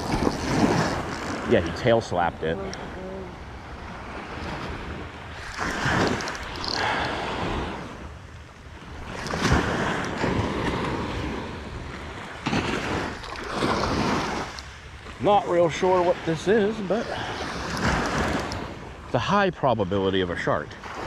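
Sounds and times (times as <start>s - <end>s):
surf washing on sandy beach: 0.0s - 8.1s, 8.8s - 21.0s
wind buffeting microphone: 0.0s - 14.6s.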